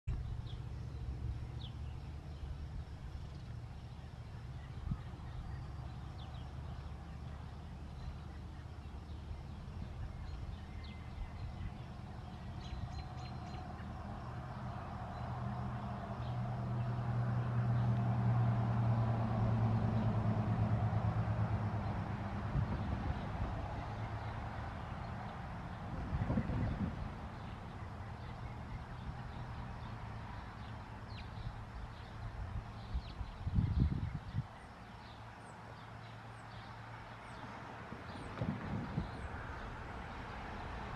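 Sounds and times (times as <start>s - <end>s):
vehicle engine humming: 0.0s - 40.9s
bird chirps: 0.1s - 15.6s.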